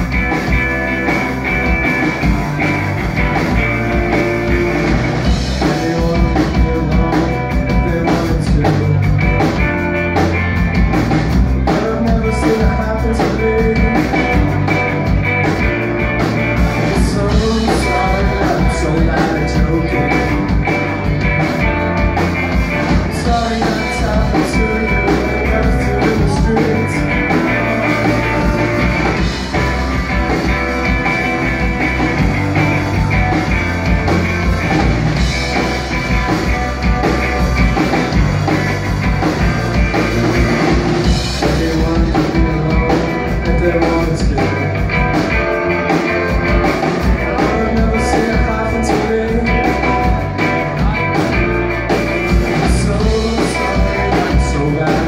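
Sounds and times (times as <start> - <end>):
live rock band playing loudly: 0.0 - 55.0
person singing: 5.5 - 9.2, 11.7 - 14.6, 16.8 - 20.6, 23.1 - 29.2, 41.3 - 44.8, 46.8 - 51.5, 52.3 - 55.0.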